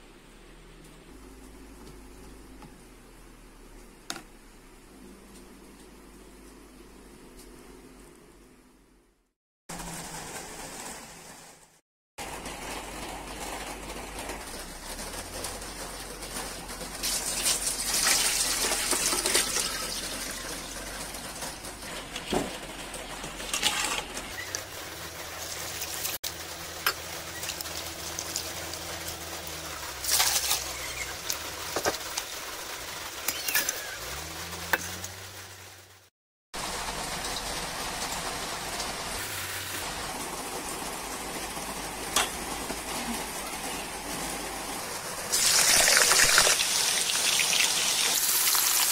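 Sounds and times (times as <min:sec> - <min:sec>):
water splashing and running: 0:14.7 - 0:41.2, 0:45.3 - 0:48.9.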